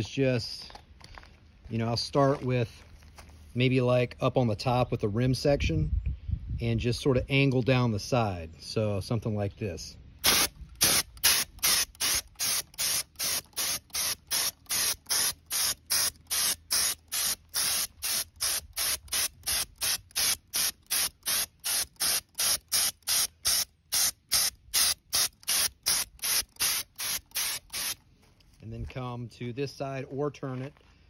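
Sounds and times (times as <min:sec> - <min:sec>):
spray gun hissing: 0:10.2 - 0:28.0.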